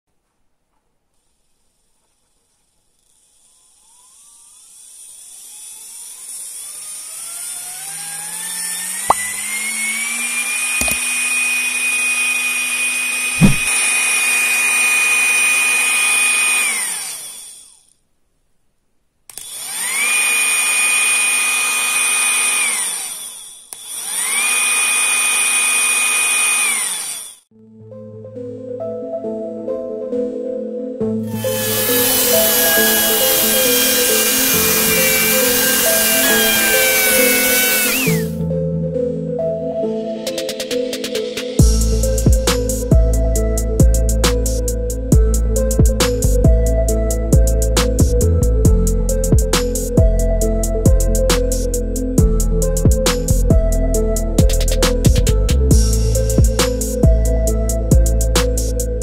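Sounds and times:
small motor whine: 1.1s - 18.0s, 19.3s - 27.5s, 31.3s - 38.5s, 41.5s - 59.0s
sharp clicks: 10.8s - 11.0s.

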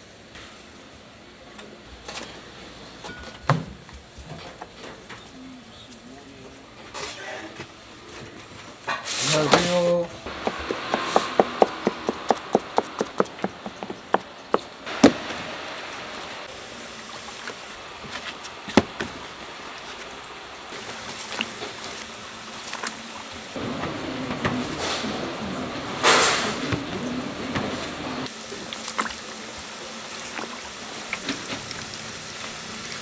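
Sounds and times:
steady hiss: 14.1s - 33.0s.

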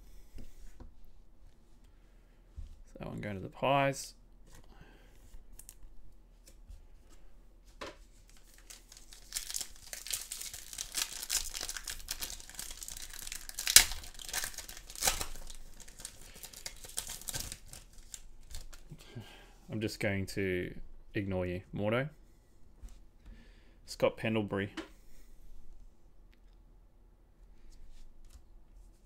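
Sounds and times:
foil wrapper crinkling and tearing: 8.2s - 18.9s.

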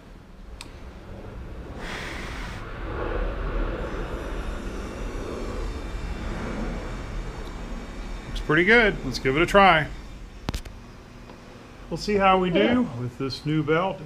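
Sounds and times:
torch flame roaring: 0.0s - 12.5s
torch gas hiss: 1.7s - 10.6s.

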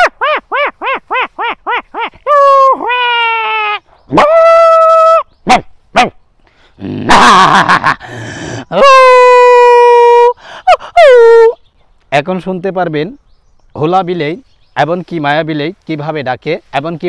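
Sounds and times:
man imitating dog barking: 0.0s - 6.2s, 6.8s - 7.9s
man imitating howling: 2.2s - 5.3s, 6.8s - 11.6s.

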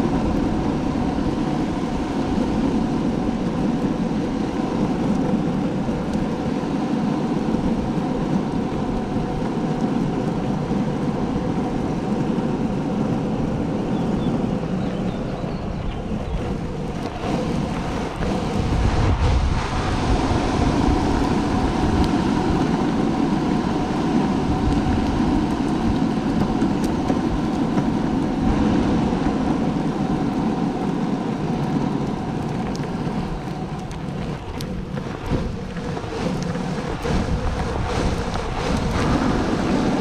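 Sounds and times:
longboard wheels rolling on pavement: 0.0s - 40.0s
wind on microphone: 0.0s - 40.0s
clicks from path joints: 24.6s - 28.4s, 29.2s - 40.0s.

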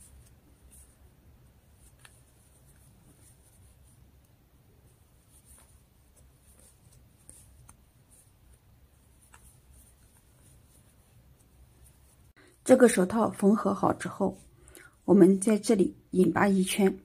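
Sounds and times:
yarn rubbing: 0.0s - 12.4s.

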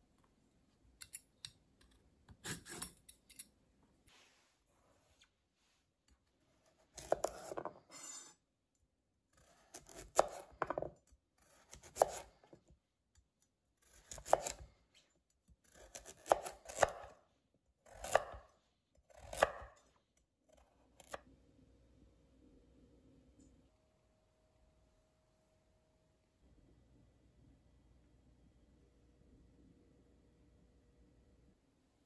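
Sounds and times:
knife slicing carrot on board: 6.7s - 8.3s, 9.4s - 12.6s, 13.8s - 14.7s, 15.6s - 17.2s, 17.9s - 18.5s, 19.1s - 19.8s.

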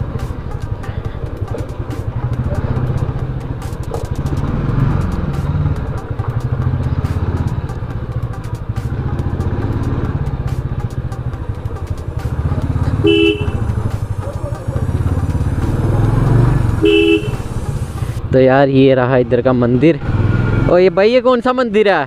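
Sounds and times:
motorcycle engine running: 0.0s - 18.6s
short horn honk: 13.0s - 13.7s, 16.8s - 17.5s.

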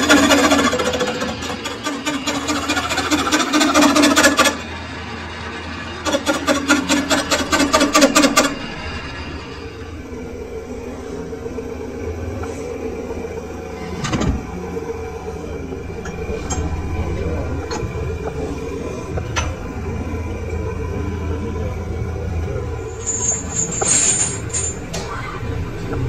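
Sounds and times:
lathe tool rapid ringing clatter: 0.0s - 11.9s, 22.7s - 25.1s
steady machine hum: 0.0s - 26.0s.

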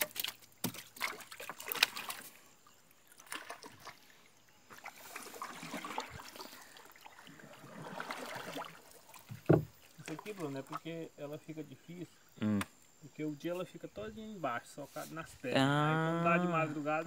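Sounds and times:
water dripping off a net: 0.0s - 2.5s
sharp splashes: 0.0s - 10.8s.

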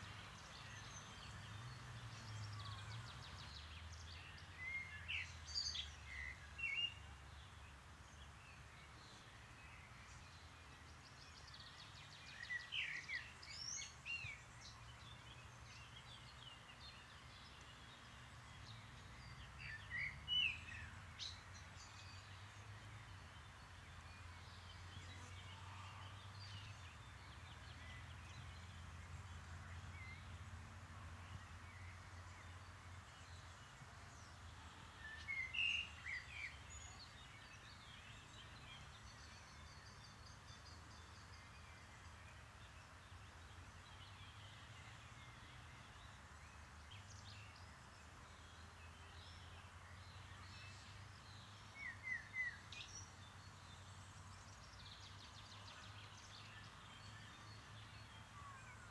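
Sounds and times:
faint steady background noise: 0.0s - 58.9s.

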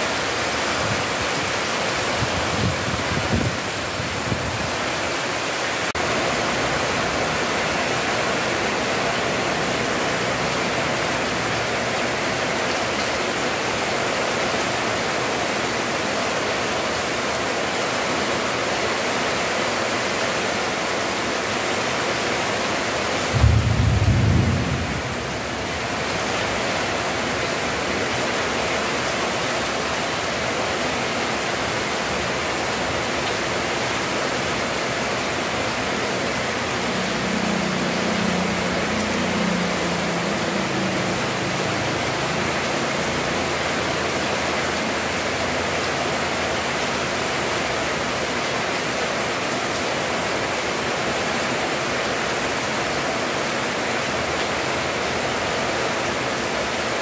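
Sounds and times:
heavy rain pouring: 0.0s - 57.0s
low rumble: 23.4s - 25.8s.

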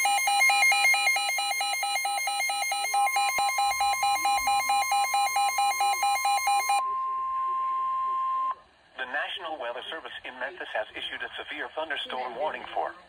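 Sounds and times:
fast electronic beeps: 0.0s - 6.8s
steady alarm tone: 0.0s - 8.6s.

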